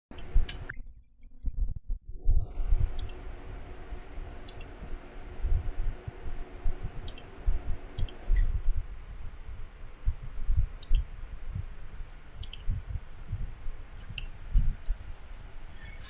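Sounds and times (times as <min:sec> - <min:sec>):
sharp clicks: 0:02.9 - 0:03.2, 0:04.4 - 0:04.8, 0:07.0 - 0:07.3, 0:07.9 - 0:08.5, 0:10.8 - 0:11.1, 0:12.4 - 0:12.7.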